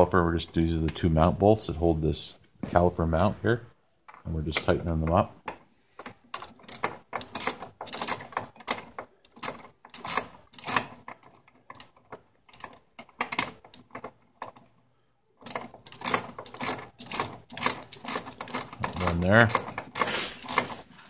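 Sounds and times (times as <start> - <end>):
ratchet wrench clicking: 6.4 - 10.9, 15.4 - 20.7.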